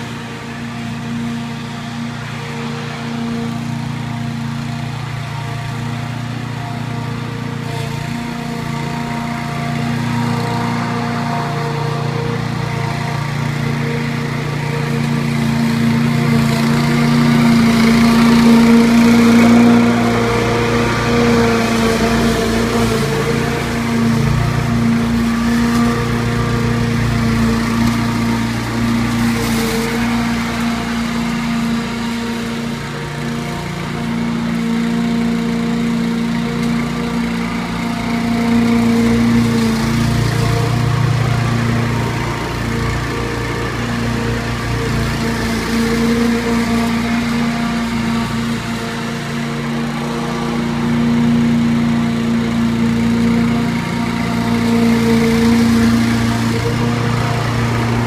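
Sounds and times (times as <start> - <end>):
lawn mower engine running: 0.0 - 58.0.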